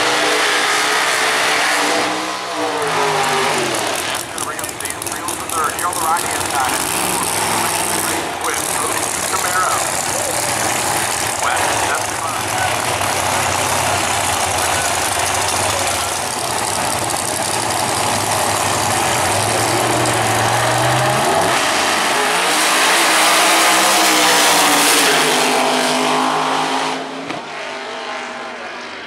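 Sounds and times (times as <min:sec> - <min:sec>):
drag car engines: 0:00.0 - 0:29.0.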